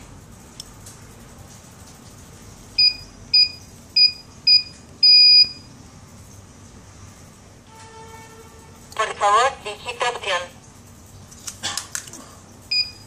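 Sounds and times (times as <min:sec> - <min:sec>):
keypad beeps: 0:02.8 - 0:05.6, 0:12.7 - 0:13.0.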